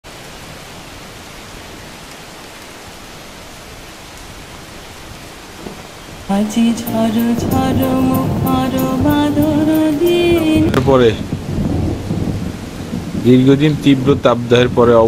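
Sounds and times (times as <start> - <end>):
light rain hissing: 0.1 - 15.0
loud music: 6.3 - 10.8.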